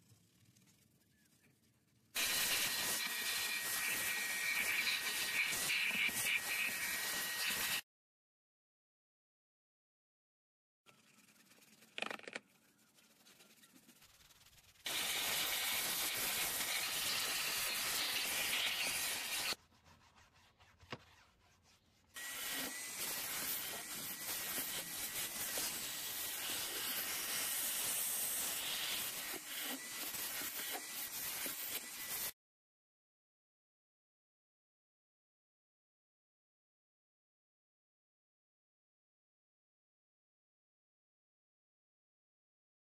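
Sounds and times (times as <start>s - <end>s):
stiff brush scrubbing car panel: 11.0s - 32.3s.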